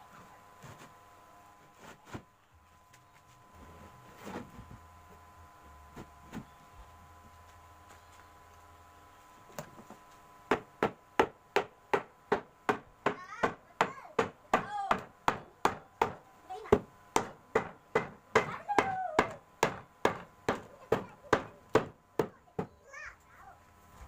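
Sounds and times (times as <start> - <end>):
hammer striking plywood: 10.5 - 22.8.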